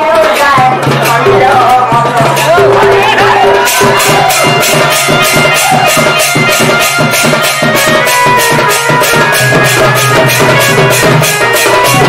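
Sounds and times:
dhol drum beaten with stick: 0:00.0 - 0:12.0
held melody tones: 0:03.5 - 0:12.0.

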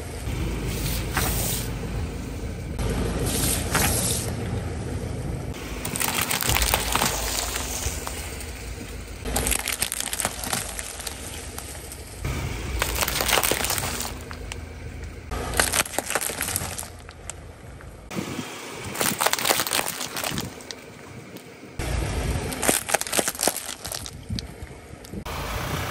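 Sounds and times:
car rumble: 0:00.0 - 0:25.9
plastic cups cracking under tyre: 0:05.8 - 0:08.5, 0:09.2 - 0:12.1, 0:12.7 - 0:18.0, 0:18.9 - 0:21.5, 0:22.5 - 0:25.2.

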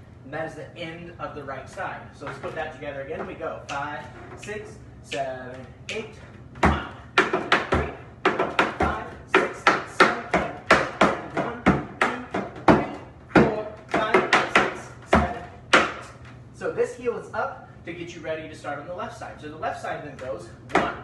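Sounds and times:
tap shoes striking a wooden board: 0:06.6 - 0:16.2, 0:20.2 - 0:21.0.

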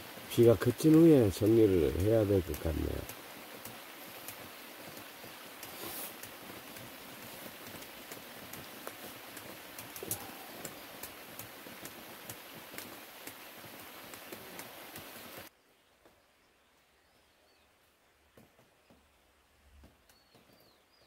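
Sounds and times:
rain falling: 0:00.0 - 0:16.2
sharp raindrops striking: 0:00.0 - 0:16.2.

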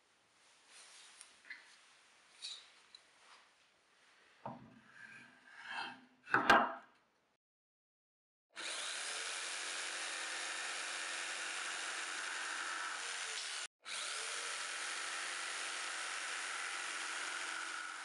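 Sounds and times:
jigsaw cutting wood: 0:08.6 - 0:18.0.

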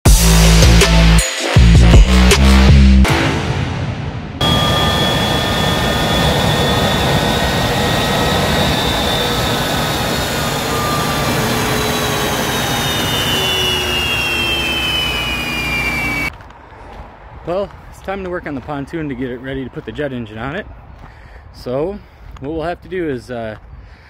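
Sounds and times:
high engine whines: 0:04.4 - 0:16.3
jet engine exhaust rush: 0:04.4 - 0:16.3.

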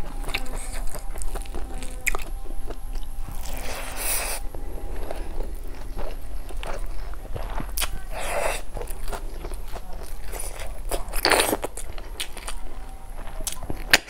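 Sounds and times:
chewing: 0:00.0 - 0:14.0
snails sucked from shells: 0:03.1 - 0:06.3.

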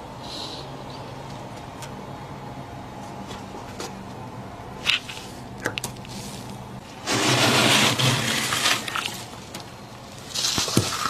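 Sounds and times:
freezer frost crunching and scraping: 0:04.8 - 0:11.0.

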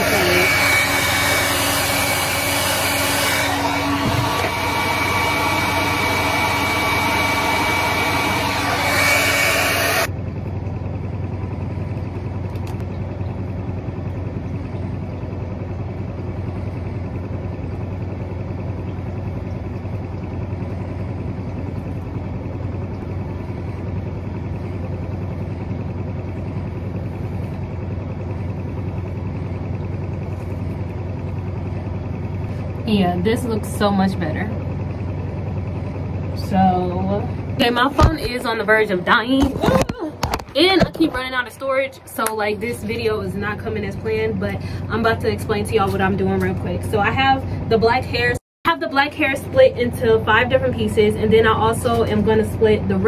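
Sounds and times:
hair dryer blowing: 0:00.0 - 0:10.1
steady low hum: 0:00.0 - 0:53.0.

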